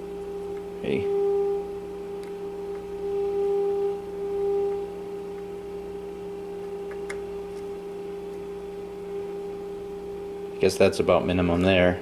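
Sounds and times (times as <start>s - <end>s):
steady test tone from radio: 0.0s - 10.8s.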